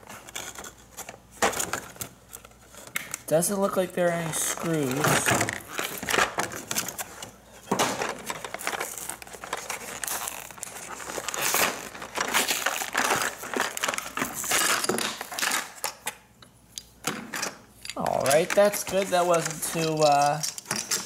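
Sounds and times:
plastic packaging crinkling: 0:04.0 - 0:16.0, 0:18.0 - 0:21.0.

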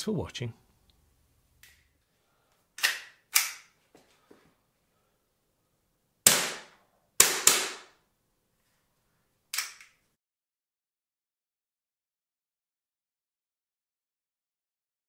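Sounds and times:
bb pistol cracks: 0:02.8 - 0:03.7, 0:06.3 - 0:08.0, 0:09.5 - 0:10.0.

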